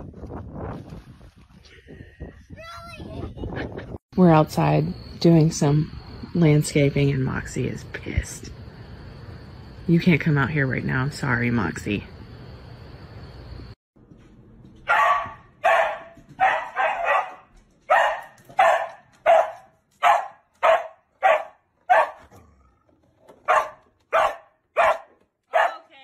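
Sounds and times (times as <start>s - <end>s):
dog barking: 14.9s - 22.5s, 23.4s - 25.9s.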